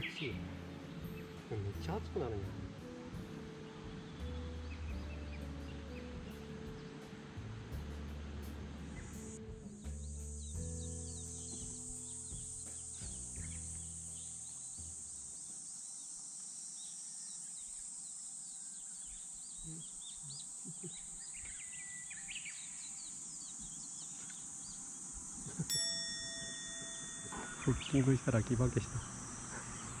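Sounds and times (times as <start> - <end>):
birds chirping and singing: 0.0 - 2.4, 3.4 - 7.1, 9.0 - 16.1, 16.8 - 30.0
background music with low notes: 0.0 - 15.5
high insect buzz: 8.5 - 30.0.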